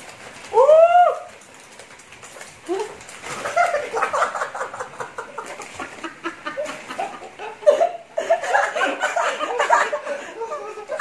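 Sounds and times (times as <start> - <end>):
man laughing with mouth full: 3.4 - 11.0
men laughing: 3.4 - 11.0.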